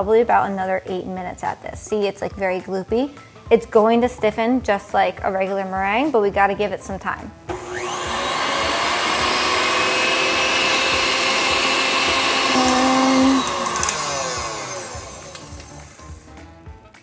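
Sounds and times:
stand mixer motor whine: 0:07.5 - 0:16.3.

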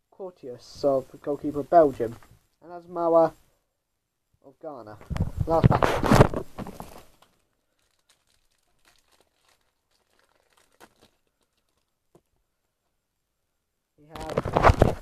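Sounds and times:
wrapper being torn open: 0:05.8 - 0:12.2.

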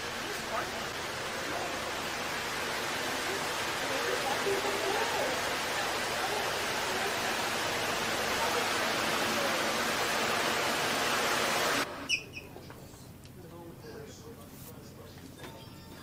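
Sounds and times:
faint voices: 0:00.0 - 0:10.5
loud steady hiss: 0:00.0 - 0:12.0.

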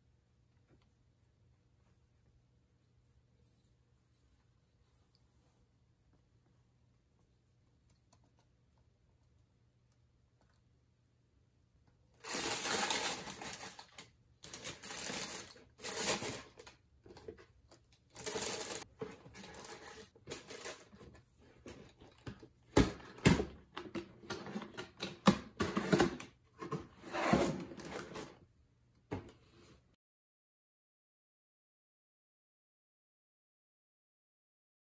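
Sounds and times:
tissue paper crinkling in box: 0:12.2 - 0:16.7, 0:18.2 - 0:20.9.

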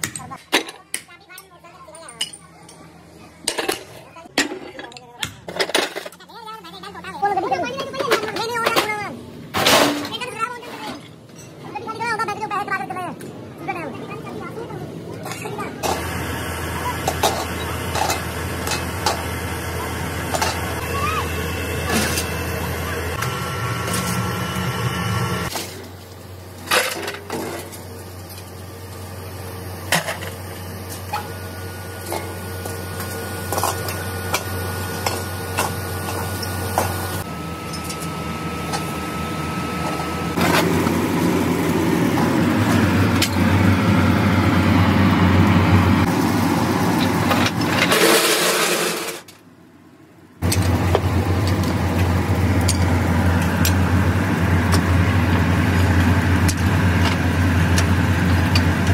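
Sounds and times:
machinery humming: 0:05.5 - 0:49.4, 0:50.0 - 0:58.9
scrap metal clanking into hopper: 0:09.5 - 0:11.1, 0:47.3 - 0:49.3.

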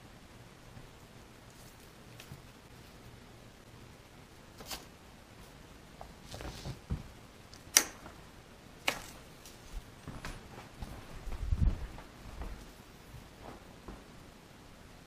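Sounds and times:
sharp clicks: 0:07.5 - 0:08.0
soft low thumps: 0:10.1 - 0:12.6.

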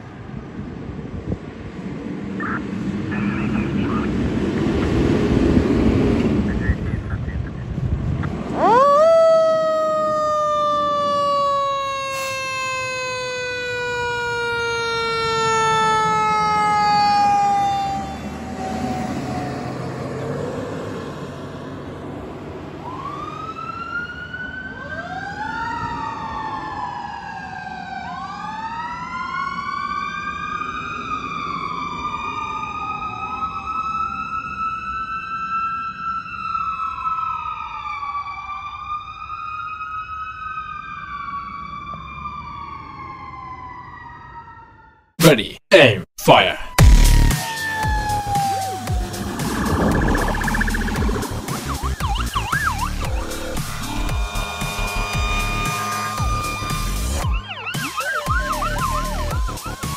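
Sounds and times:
mechanical siren winding down: 0:08.5 - 0:20.2, 0:46.6 - 0:59.9
electronic siren wailing: 0:08.5 - 0:20.3, 0:46.6 - 0:59.9.

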